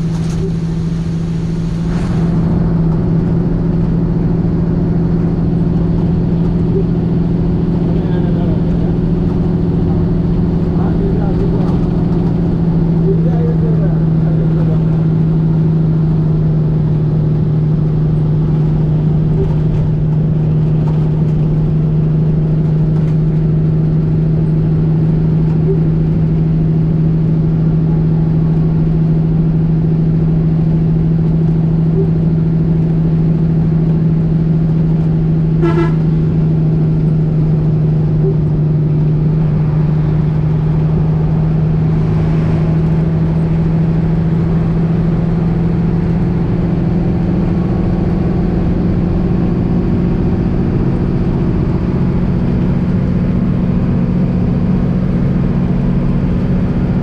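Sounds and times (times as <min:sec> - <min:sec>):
rain: 0:00.0 - 0:03.0
bus engine droning: 0:00.0 - 0:57.0
road noise: 0:00.0 - 0:57.0
vehicle horn toot: 0:35.6 - 0:36.2.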